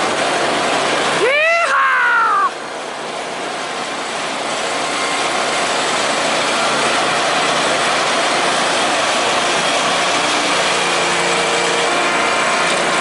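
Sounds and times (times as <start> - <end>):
riding tractor engine drone: 0.0 - 13.0.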